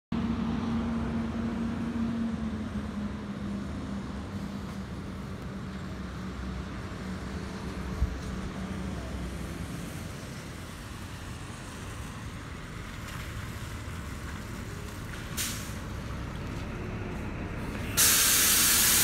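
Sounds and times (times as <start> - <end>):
wash of noise: 18.0 - 19.0.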